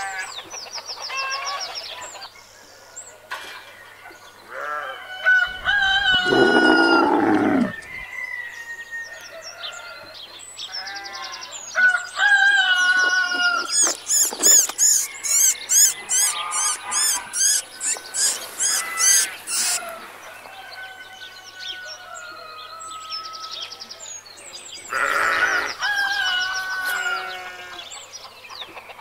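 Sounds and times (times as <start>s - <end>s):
crowing-like bird calls: 4.5s - 10.0s, 10.7s - 23.7s, 24.9s - 27.9s
chickens clucking: 12.8s - 20.2s
quick high chirps: 13.7s - 19.8s.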